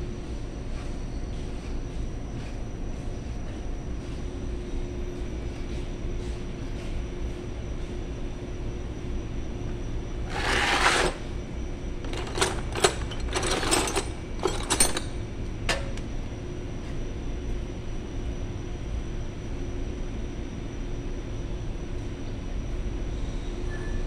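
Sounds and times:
metal parts clinking and rattling: 10.3 - 11.2, 12.0 - 16.0
scraping rustle: 10.3 - 11.3.

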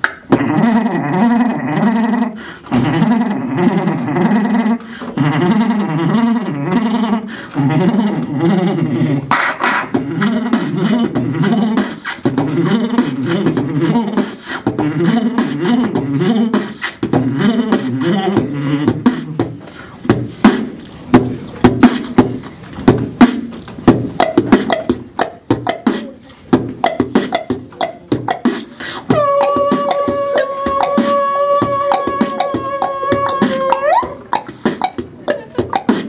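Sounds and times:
beatboxing into microphone: 0.0 - 36.0.

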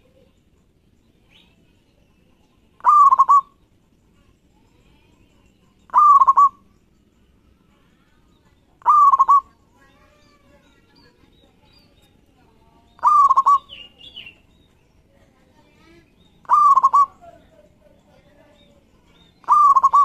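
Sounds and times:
dove cooing: 2.8 - 3.6, 5.9 - 6.6, 8.8 - 9.6, 13.0 - 13.8, 16.4 - 17.2, 19.4 - 20.0.

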